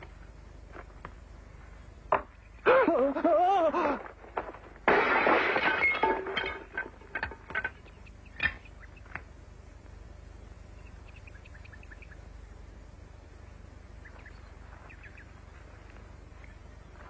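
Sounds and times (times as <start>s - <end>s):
something breaking and shattering: 4.4s - 7.8s
pieces clinking and knocking: 4.4s - 8.6s.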